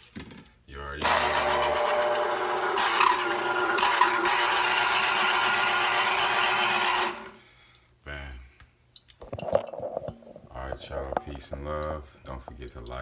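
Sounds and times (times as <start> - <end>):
citrus juicer motor whir: 1.0 - 7.4.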